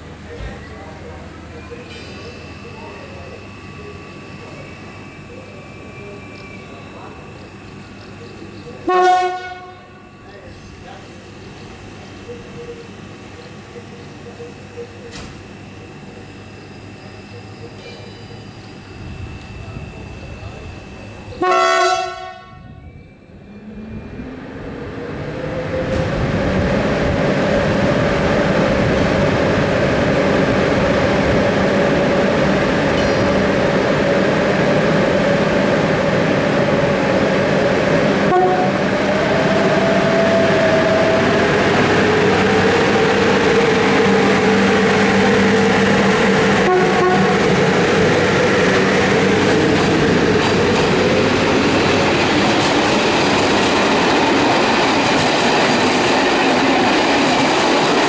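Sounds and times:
electric locomotive hum and whine: 0.0s - 58.0s
train coaches rolling past: 0.0s - 58.0s.

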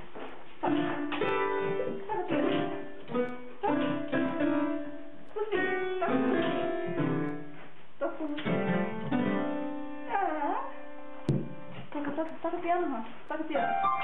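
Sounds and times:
piano note clusters: 0.6s - 7.6s, 8.4s - 11.7s, 13.6s - 14.0s.

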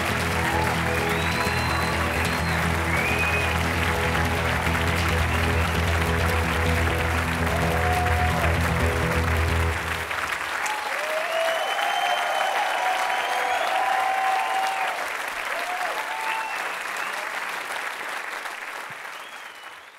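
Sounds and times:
audience applauding: 0.0s - 19.9s
audience cheering: 0.0s - 19.9s.

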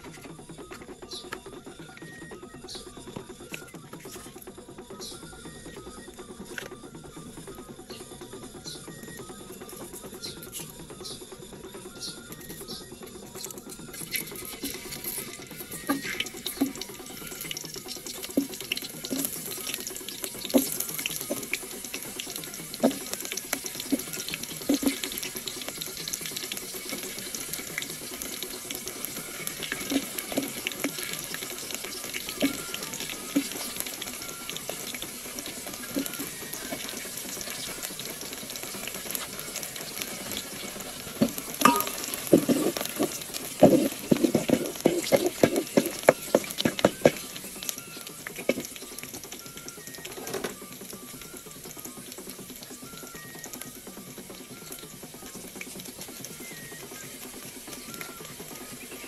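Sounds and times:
utensils knocking and clinking: 41.2s - 47.2s.

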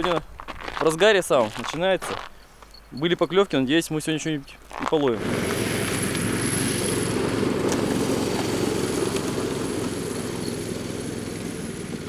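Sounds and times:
small petrol engine running: 5.2s - 12.0s.

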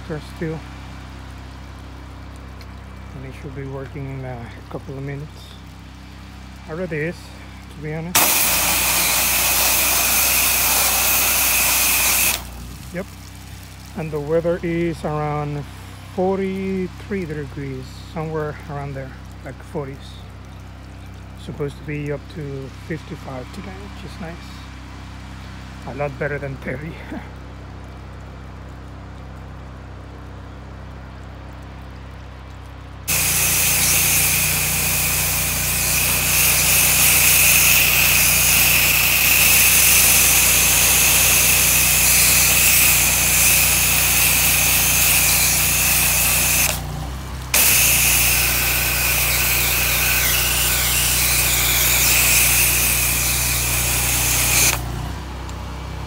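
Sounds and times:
pressure washer engine hum: 0.0s - 27.8s, 32.7s - 56.0s
pressure washer spray hiss: 8.1s - 13.2s, 33.1s - 54.9s.

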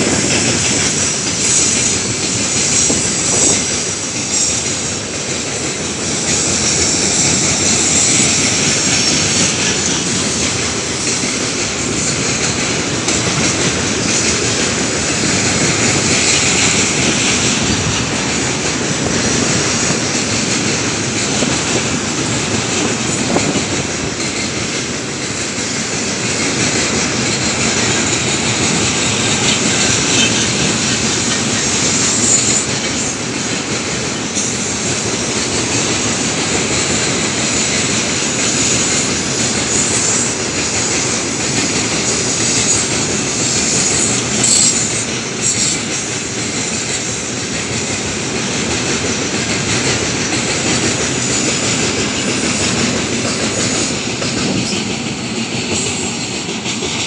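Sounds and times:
freight train rumbling past: 0.0s - 57.0s
high wheel squeals: 23.1s - 33.2s, 38.2s - 46.0s.

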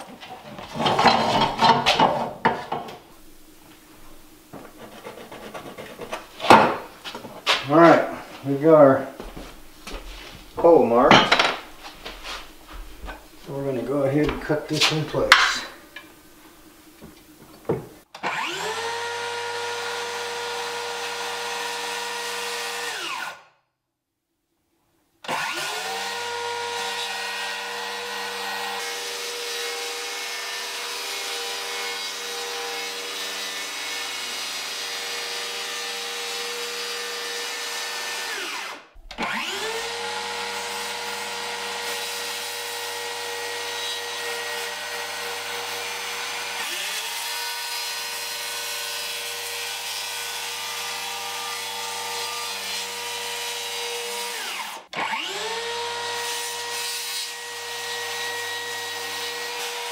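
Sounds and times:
circular saw cutting wood: 4.5s - 8.9s, 18.2s - 23.4s, 25.3s - 59.9s.

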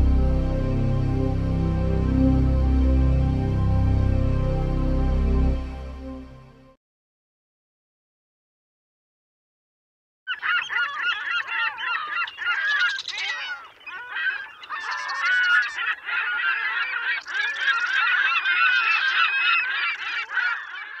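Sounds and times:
flock of birds honking: 10.3s - 21.0s.

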